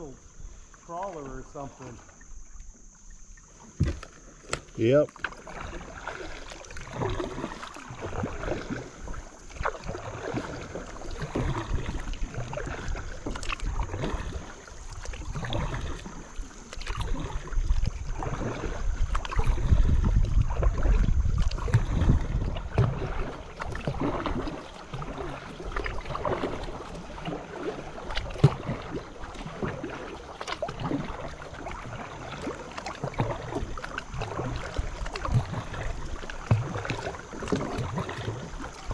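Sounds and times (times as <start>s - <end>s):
paddle strokes: 0.0s - 38.9s
water splashing: 0.0s - 38.9s
wind rumble on microphone: 16.8s - 24.6s.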